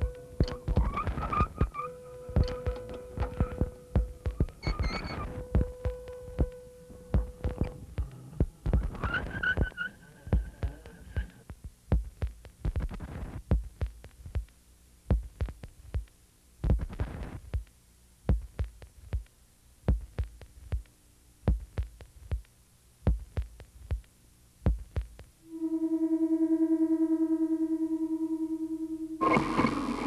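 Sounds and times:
low sharp thumps: 0.0s - 14.5s, 15.1s - 17.7s, 18.3s - 19.3s, 19.9s - 20.9s, 23.1s - 25.7s.

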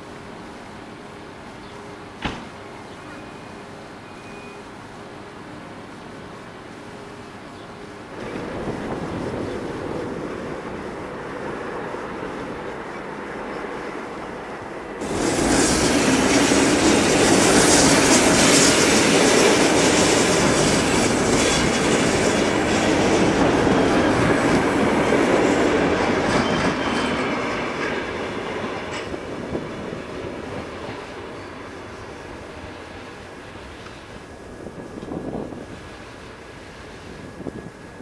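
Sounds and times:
electric train passing: 0.0s - 38.0s
railway station rumble: 0.0s - 38.0s
faint hiss: 29.5s - 38.0s.

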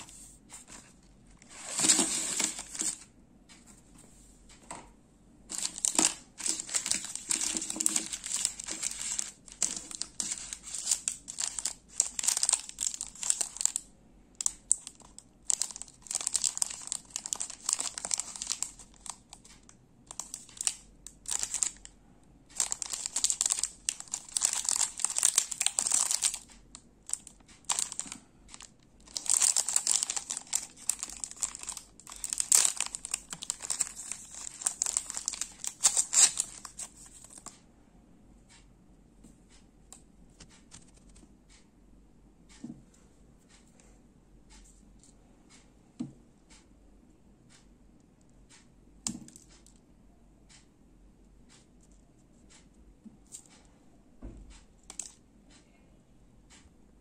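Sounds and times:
plastic wrappers crinkling: 1.4s - 3.0s, 5.5s - 37.5s.

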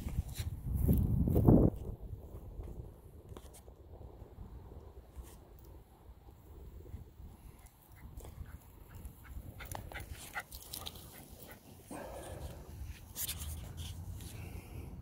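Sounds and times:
small dog puffing and clicking: 7.6s - 11.6s.

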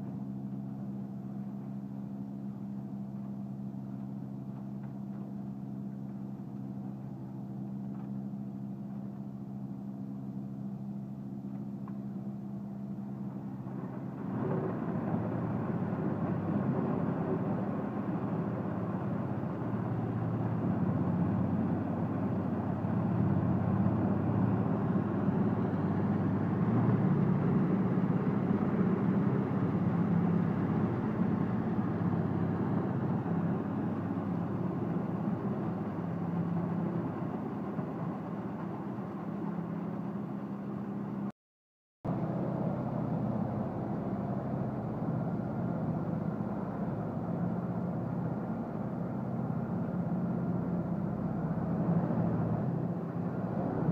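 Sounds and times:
wood chipper running: 12.7s - 40.4s.

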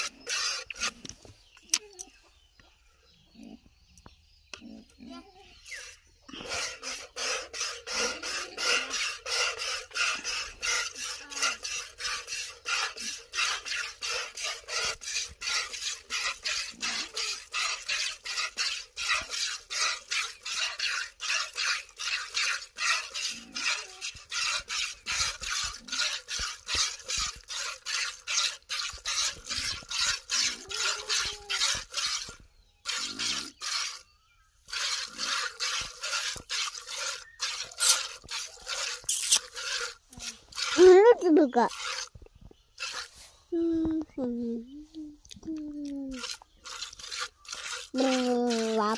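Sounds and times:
milk squirting into plastic bucket: 5.8s - 34.0s, 34.6s - 42.2s, 46.1s - 48.9s.

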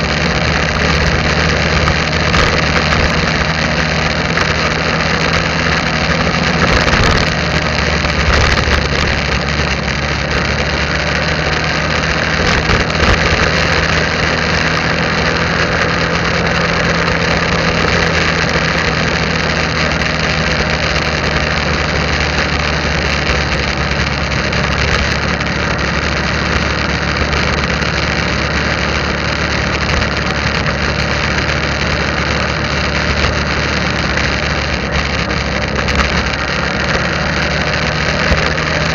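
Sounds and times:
motorbike engine running: 0.0s - 38.9s
wind and road noise: 0.0s - 38.9s.

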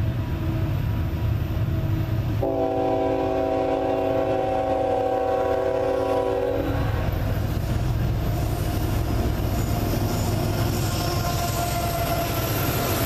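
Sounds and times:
locomotive air horn chord: 2.4s - 7.1s.

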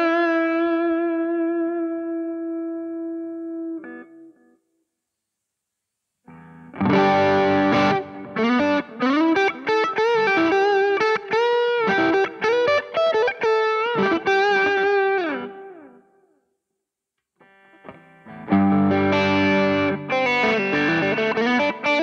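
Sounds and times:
distorted electric guitar: 0.0s - 4.4s, 6.3s - 16.1s, 17.4s - 22.0s.

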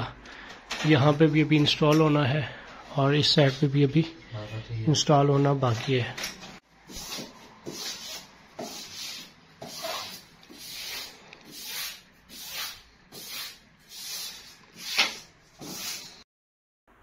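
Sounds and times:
hand smoothing wallpaper: 6.8s - 16.2s.

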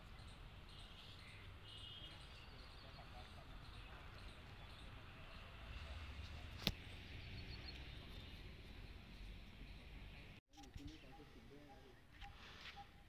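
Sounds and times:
faint bird chirps: 10.6s - 13.0s.

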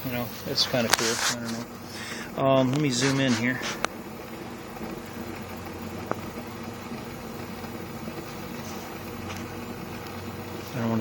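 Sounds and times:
rush of draft air: 0.0s - 6.5s
fire crackle: 0.0s - 11.0s.

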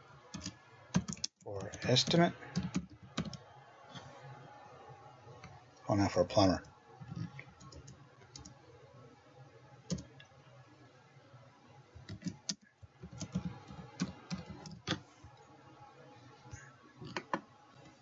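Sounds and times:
computer keyboard typing: 0.3s - 3.4s, 7.0s - 8.6s, 9.9s - 10.1s, 12.0s - 15.0s.

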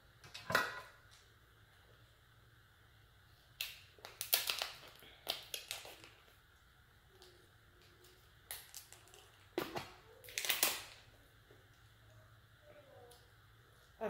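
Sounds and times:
lobster shell cracking: 3.6s - 6.1s, 10.2s - 11.0s.

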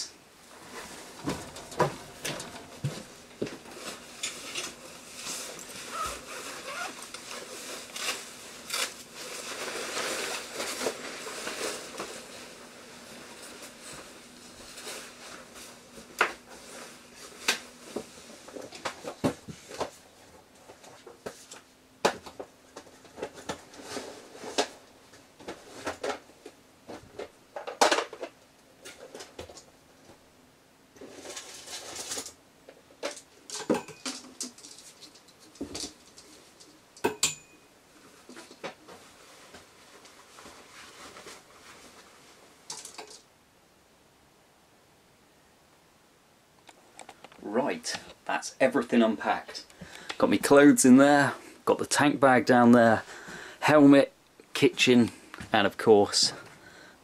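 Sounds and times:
faint steady hum: 0.0s - 57.0s
bag and clothing rustling: 0.5s - 18.8s.

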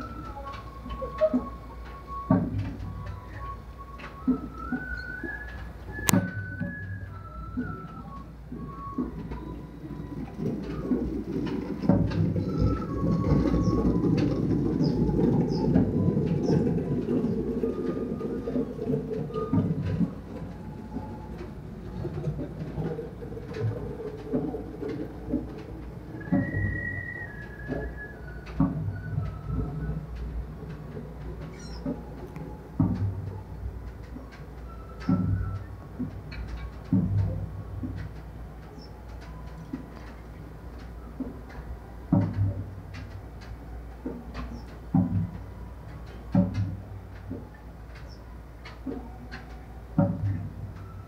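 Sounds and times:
distant festival music: 0.0s - 51.0s.

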